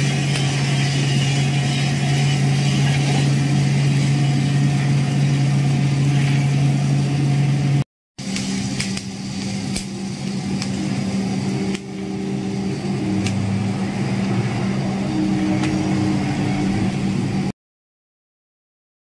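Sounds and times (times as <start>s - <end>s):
machine motors humming: 0.0s - 7.8s.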